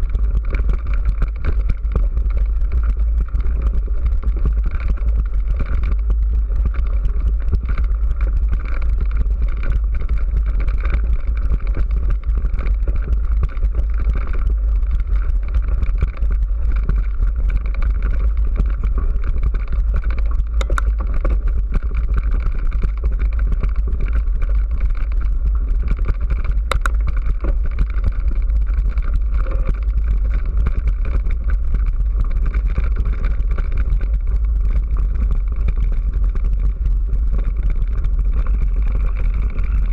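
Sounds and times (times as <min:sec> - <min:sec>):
wind buffeting camera: 0:00.0 - 0:39.9
sharp clicks: 0:26.7 - 0:27.0.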